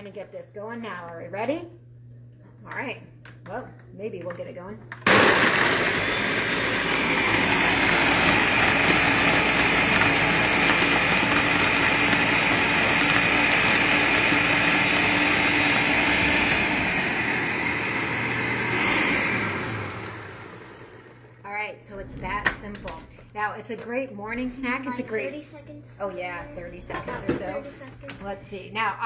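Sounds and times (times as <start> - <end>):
blender motor whir: 5.0 - 21.4.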